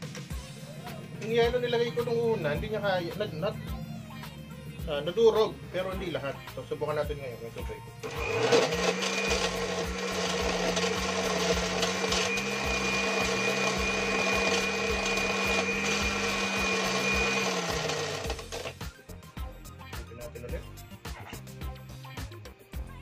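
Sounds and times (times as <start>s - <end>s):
blender motor running: 8.0s - 18.9s.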